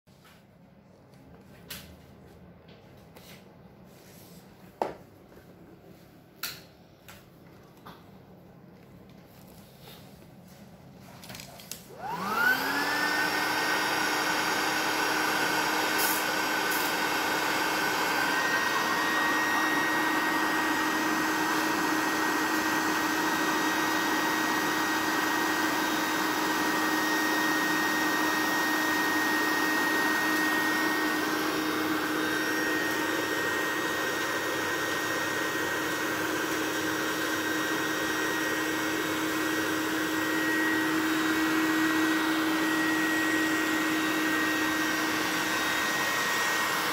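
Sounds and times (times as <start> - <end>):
electric air pump whining: 11.3 - 46.9.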